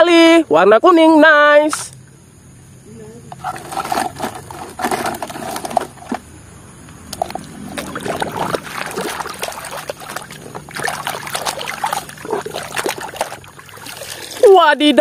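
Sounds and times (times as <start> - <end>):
water splashing in plastic tub: 3.4 - 6.3, 6.9 - 15.0.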